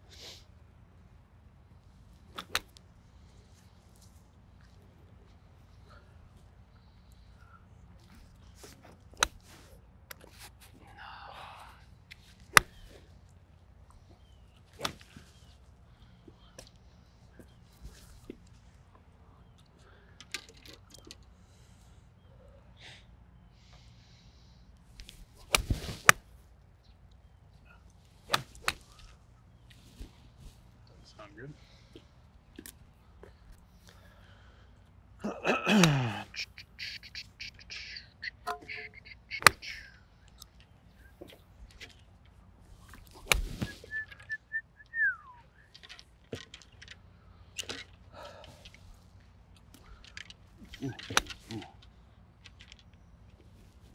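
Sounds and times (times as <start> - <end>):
golf balls struck by clubs: 2.0 - 3.3, 7.8 - 10.6, 12.0 - 16.8, 25.0 - 26.6, 27.9 - 30.8, 38.3 - 44.3, 45.7 - 53.9
golf club striking ball: 12.5 - 13.0, 28.3 - 29.0, 38.5 - 39.6
bird whistling: 36.4 - 40.0, 43.5 - 45.7.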